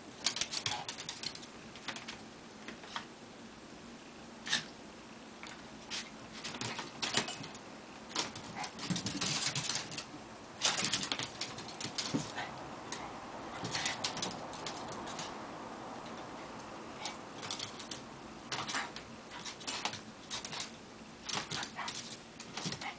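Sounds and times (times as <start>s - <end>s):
dog claws scrabbling on wood floor: 5.4s - 15.4s, 17.0s - 20.7s
soft dog noises: 8.2s - 15.4s, 16.0s - 22.9s.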